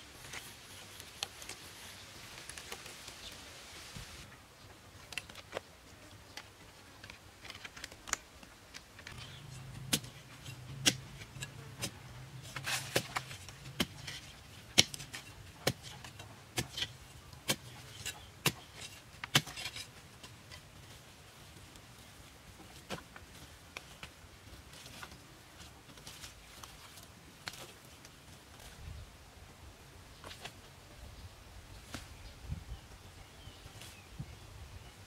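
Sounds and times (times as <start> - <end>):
hoe striking pebbly soil: 8.8 - 21.9
soil scraping: 9.0 - 28.8.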